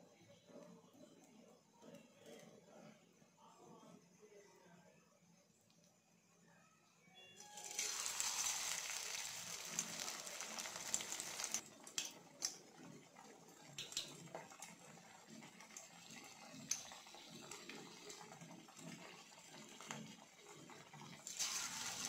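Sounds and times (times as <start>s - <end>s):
hot oil sizzling: 7.4s - 12.6s, 13.6s - 22.0s.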